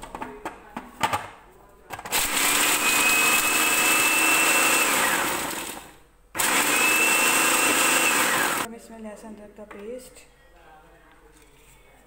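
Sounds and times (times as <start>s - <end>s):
food processor motor whining: 2.1s - 8.7s.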